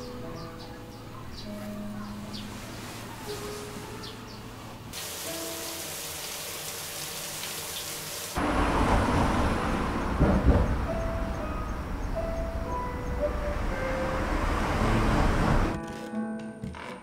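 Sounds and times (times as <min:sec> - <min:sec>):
tall grass rustling: 0:02.2 - 0:04.4
rain-like hiss: 0:04.9 - 0:09.6
low rumbling outdoor noise: 0:08.4 - 0:15.8.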